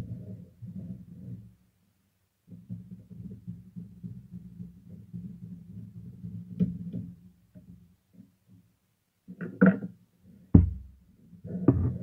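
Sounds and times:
heavy thump: 0:10.6 - 0:11.0.

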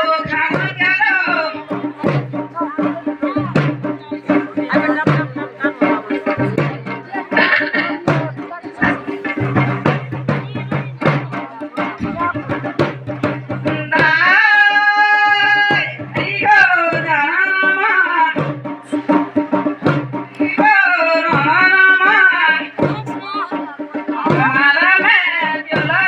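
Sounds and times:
continuous drumming: 0:00.0 - 0:26.0
person singing wavering phrases: 0:13.6 - 0:18.5.

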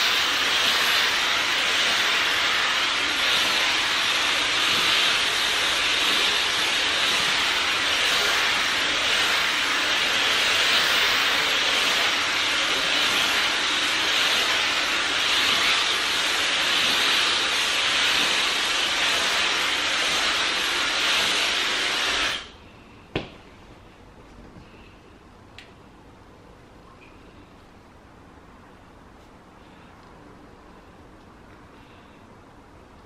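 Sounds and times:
hair dryer blowing: 0:00.0 - 0:22.5.

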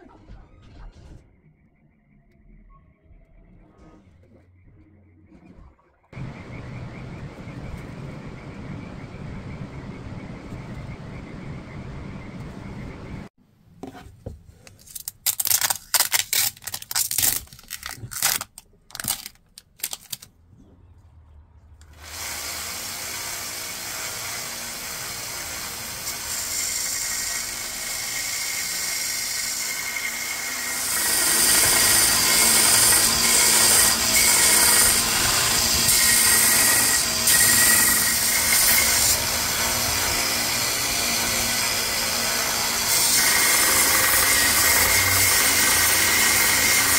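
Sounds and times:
steady low hum: 0:06.2 - 0:13.3
belt sander grinding wood: 0:21.9 - 0:46.9.

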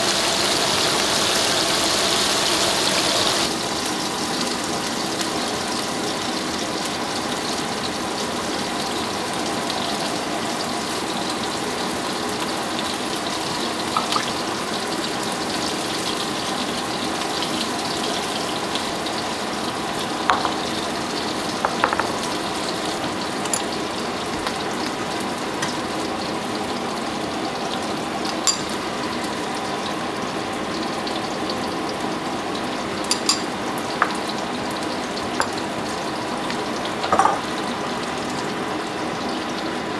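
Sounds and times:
patties sizzling in a pan: 0:00.0 - 0:39.9
taps on wooden cutting board: 0:21.7 - 0:22.1.

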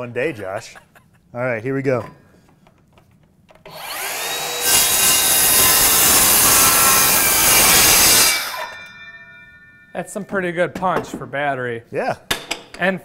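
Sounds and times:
circular saw cutting wood: 0:03.7 - 0:08.9
circular saw whine: 0:03.7 - 0:09.9.

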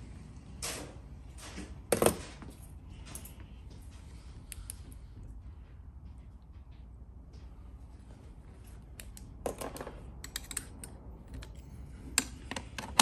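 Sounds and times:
low steady hum: 0:00.0 - 0:13.0
metallic clicks and knocks: 0:09.0 - 0:11.6.

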